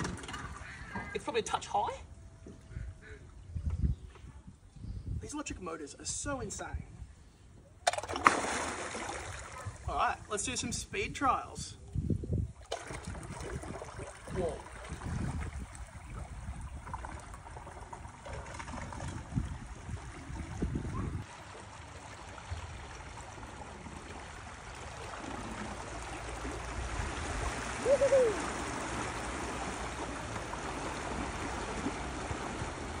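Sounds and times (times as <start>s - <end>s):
water rushing and lapping: 7.9s - 10.6s, 12.4s - 33.0s.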